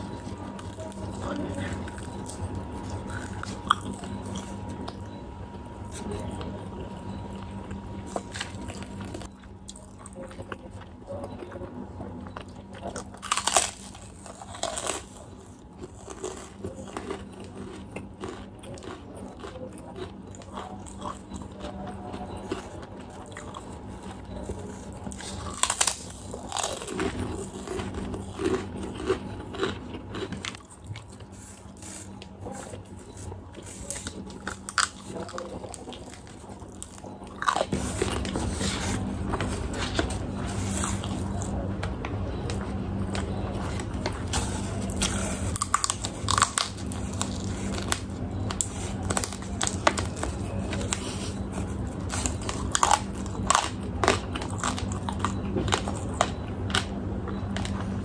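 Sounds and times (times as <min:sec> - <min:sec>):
wet chewing: 0:00.0 - 0:41.6, 0:42.3 - 0:58.0
crunching cracker bites: 0:13.0 - 0:21.6, 0:22.4 - 0:32.2, 0:33.6 - 0:38.9, 0:43.2 - 0:56.9.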